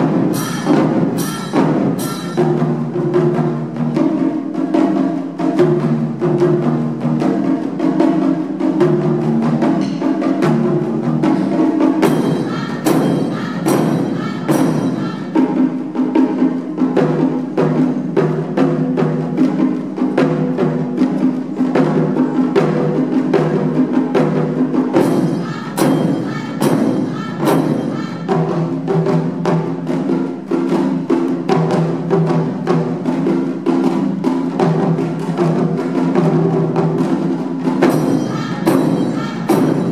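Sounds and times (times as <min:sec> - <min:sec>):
sharp bright drum cracks: 0:00.0 - 0:02.8
taiko drums played fast: 0:00.0 - 0:39.9.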